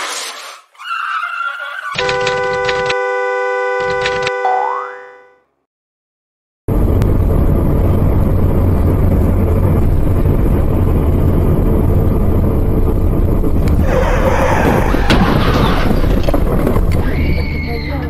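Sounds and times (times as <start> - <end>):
car engine and road rumble: 1.8 - 4.4, 6.7 - 18.0
car crash crunching and scraping: 13.7 - 17.7
sharp bangs: 13.8 - 17.2.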